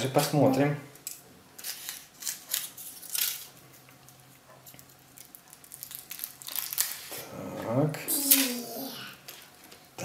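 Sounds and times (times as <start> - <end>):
foil wrapper crinkling: 4.7 - 7.1.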